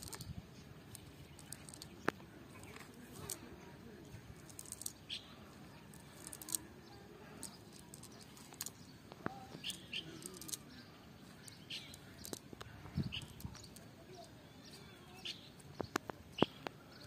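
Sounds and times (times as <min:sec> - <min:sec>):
bird chirps: 0:04.5 - 0:17.0.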